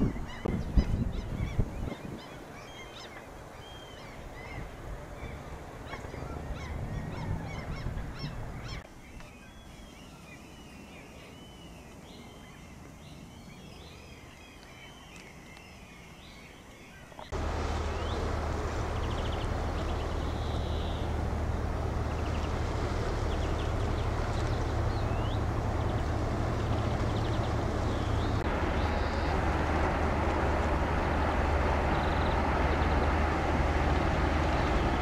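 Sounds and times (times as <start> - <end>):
songbirds singing: 0.0 - 35.0
steady low rumble and hiss: 0.0 - 35.0
waterfowl calling: 17.4 - 35.0.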